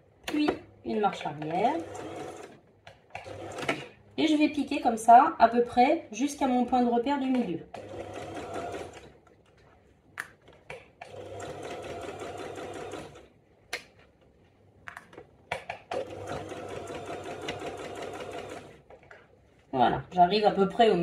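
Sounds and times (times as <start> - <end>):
sewing machine stitching: 1.4 - 2.6, 3.2 - 4.0, 7.7 - 9.2, 11.0 - 13.3, 15.9 - 18.8.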